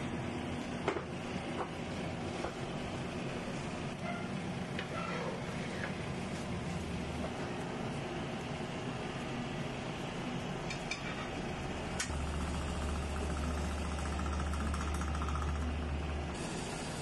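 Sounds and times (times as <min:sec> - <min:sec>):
kitchen hiss: 0:16.4 - 0:17.0.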